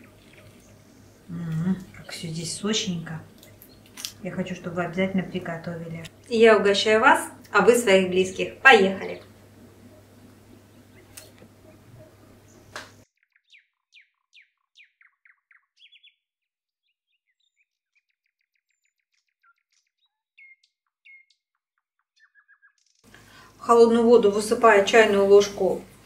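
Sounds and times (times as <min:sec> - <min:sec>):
bird chirping and trilling: 0:09.9 - 0:22.9.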